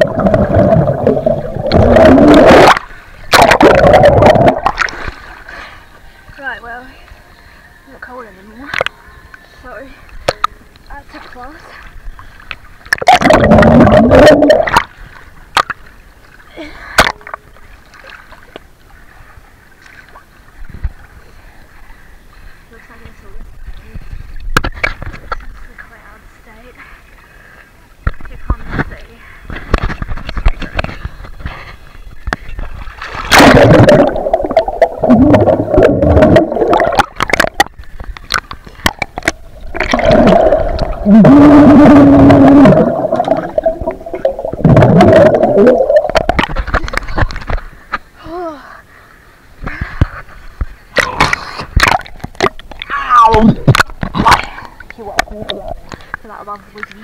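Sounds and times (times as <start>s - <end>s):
muffled underwater bubbling: 0.0s - 4.9s, 12.9s - 14.9s, 33.3s - 47.4s
water splashing: 0.0s - 6.8s, 10.1s - 21.4s, 29.5s - 47.9s
water lapping: 4.6s - 12.9s, 14.7s - 44.8s
underwater clicks and knocks: 10.2s - 10.6s, 24.4s - 25.5s, 29.5s - 31.6s, 33.8s - 41.0s, 43.1s - 48.0s, 50.0s - 57.0s.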